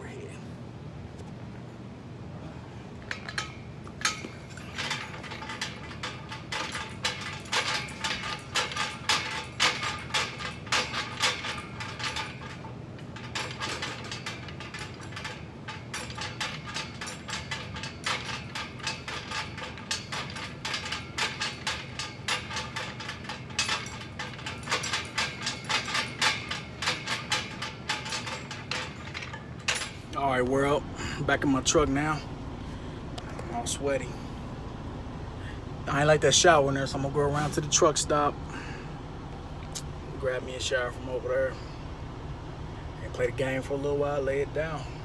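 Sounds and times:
steady low hum: 0:00.0 - 0:45.0
cable pulleys clicking: 0:03.0 - 0:30.6
weight plates clinking: 0:03.0 - 0:32.2.

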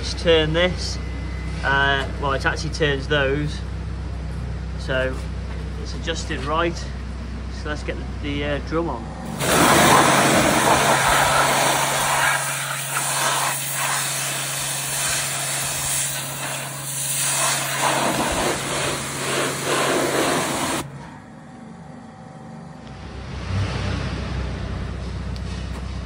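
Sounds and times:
pump humming: 0:09.2 - 0:21.6
pressure washer spraying: 0:09.3 - 0:20.9.

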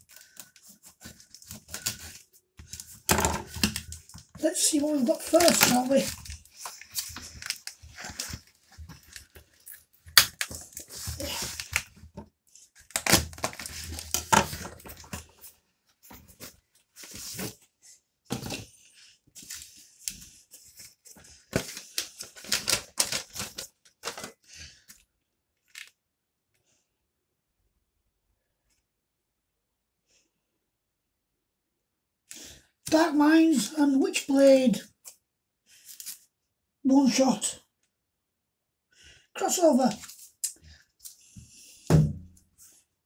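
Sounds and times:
box and packaging rustling: 0:00.0 - 0:17.7, 0:18.3 - 0:26.0
packing tape tearing: 0:05.2 - 0:11.9, 0:12.8 - 0:15.2, 0:21.5 - 0:24.3.

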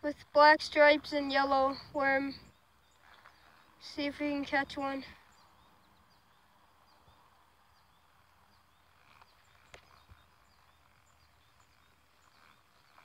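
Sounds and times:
small high chirps: 0:05.2 - 0:13.0.

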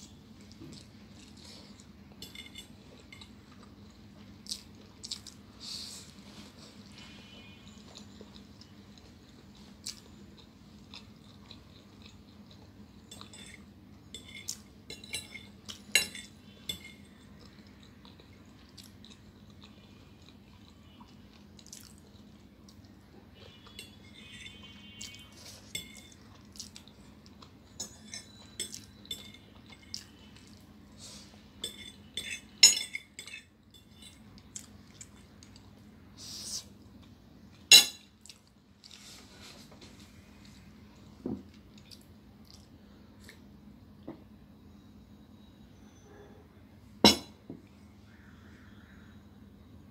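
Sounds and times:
steady low hum: 0:00.0 - 0:49.9
metal fork scraping on a plate: 0:02.2 - 0:03.3, 0:13.1 - 0:17.1, 0:23.6 - 0:26.2, 0:31.6 - 0:34.2.

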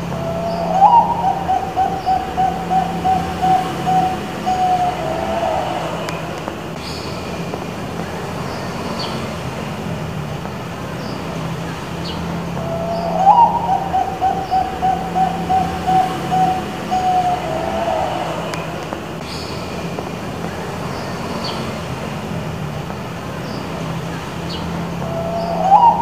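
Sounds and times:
dove cooing: 0:00.0 - 0:06.6, 0:12.6 - 0:19.0, 0:25.0 - 0:26.0
steady low hum: 0:00.0 - 0:26.0.

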